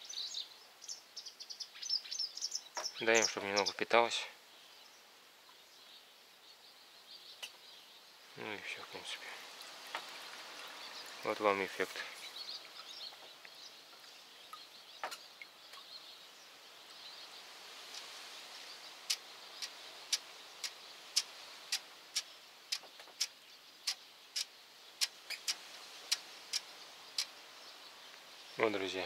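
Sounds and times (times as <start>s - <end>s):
faint background hiss: 0.0s - 29.0s
drips ticking into bucket: 9.8s - 11.3s.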